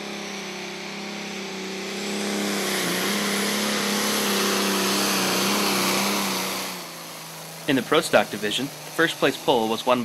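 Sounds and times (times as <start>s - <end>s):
diesel engine droning under load: 0.0s - 10.0s.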